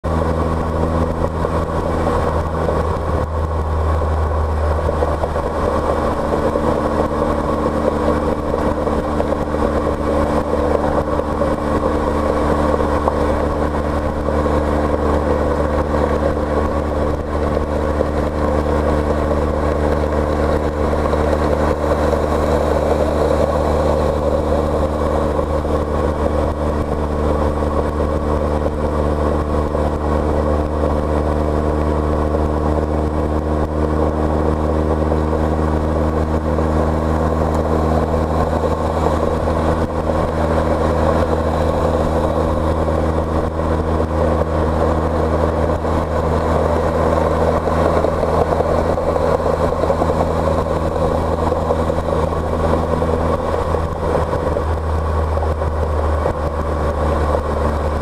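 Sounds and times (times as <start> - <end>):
car engine hum: 0.0 - 58.0
road and wind noise: 0.0 - 58.0.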